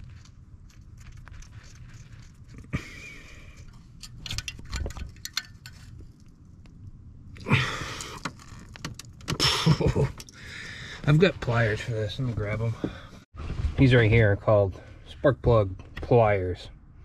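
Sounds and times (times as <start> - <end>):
small metallic clicks: 3.6 - 6.8.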